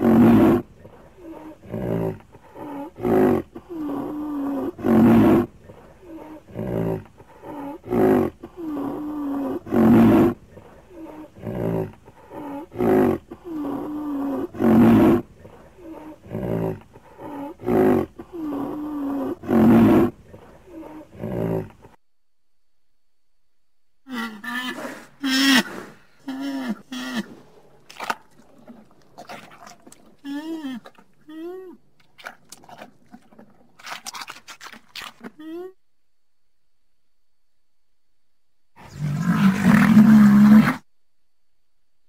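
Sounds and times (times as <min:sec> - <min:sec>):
rhinoceros calling: 0:38.8 - 0:40.8.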